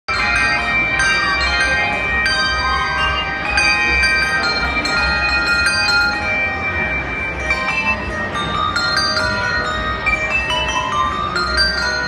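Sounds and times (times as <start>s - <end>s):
handbell choir playing: 0.1s - 12.0s.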